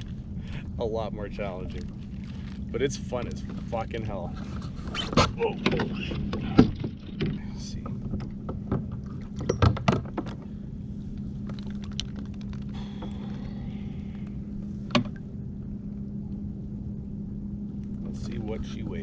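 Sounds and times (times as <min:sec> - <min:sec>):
steady low hum: 0:00.0 - 0:19.0
fishing gear clicks and knocks: 0:11.1 - 0:13.5.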